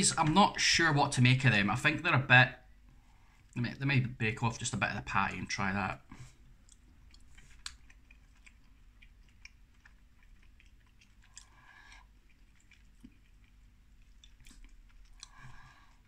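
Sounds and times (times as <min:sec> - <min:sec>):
man chewing with mouth clicks: 0:06.0 - 0:16.0.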